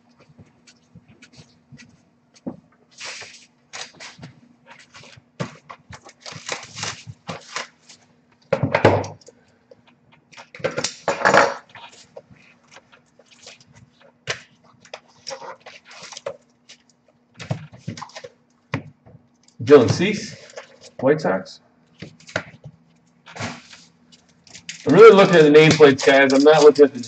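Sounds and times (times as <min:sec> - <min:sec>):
cards rustling and clicking: 0:03.0 - 0:08.1, 0:21.9 - 0:27.0.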